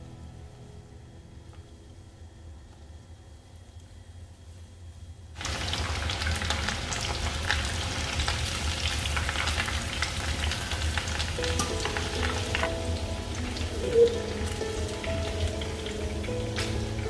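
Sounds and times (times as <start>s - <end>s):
food deep-frying in hot oil: 5.4s - 17.0s.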